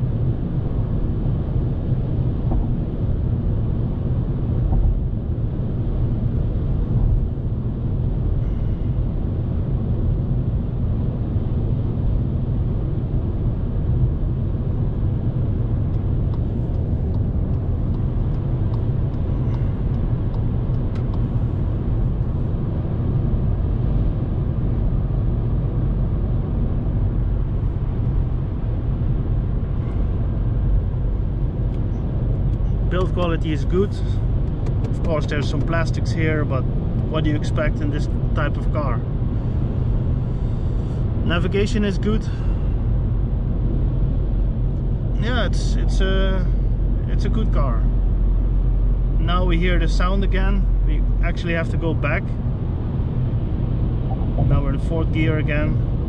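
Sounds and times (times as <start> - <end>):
car engine droning: 0.0 - 56.0
road and wind rumble: 0.0 - 56.0.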